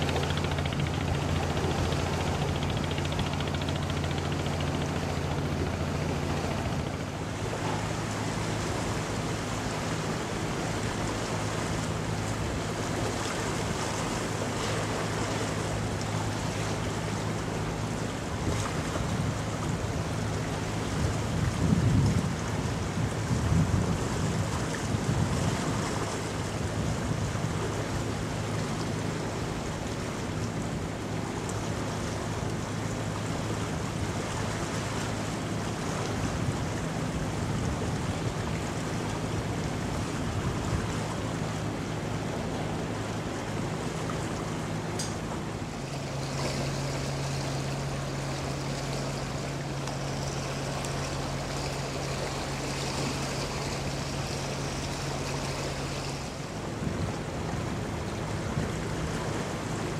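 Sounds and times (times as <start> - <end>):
ship engine drone: 0.0 - 59.9
water wash: 0.0 - 59.9
wind gusting on microphone: 18.3 - 27.6, 56.3 - 59.2.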